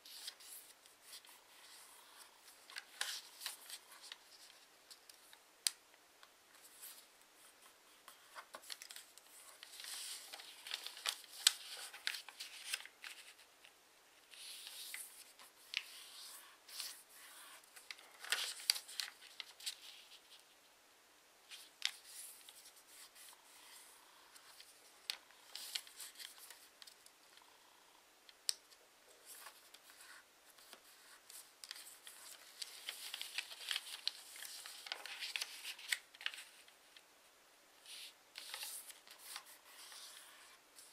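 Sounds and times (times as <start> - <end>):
paper rustling and crinkling: 0.0 - 5.4, 6.5 - 20.4, 21.5 - 27.0, 29.2 - 37.0, 37.9 - 40.9.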